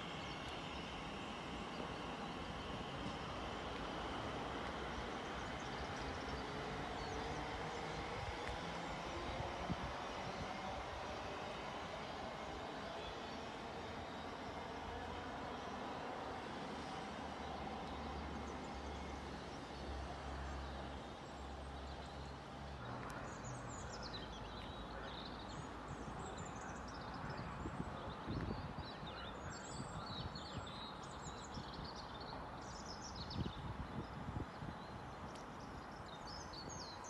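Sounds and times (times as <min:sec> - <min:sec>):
outdoor background noise: 0:00.0 - 0:37.0.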